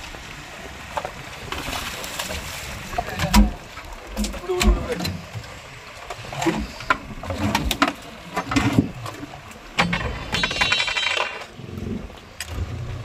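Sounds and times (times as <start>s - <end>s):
tackle clattering on fish box: 9.8s - 11.5s.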